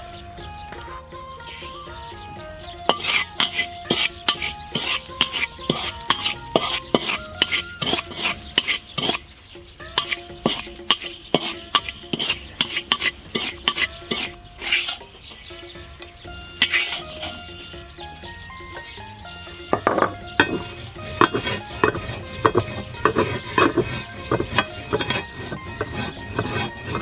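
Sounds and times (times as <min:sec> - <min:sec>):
metal spatula scraping salt in wok: 0:02.9 - 0:15.2, 0:16.6 - 0:17.4, 0:20.4 - 0:27.0.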